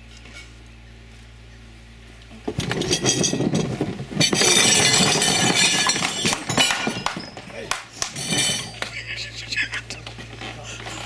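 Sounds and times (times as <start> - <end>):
faint steady hum: 0.0 - 11.0
furniture and tableware crashing: 2.6 - 8.8.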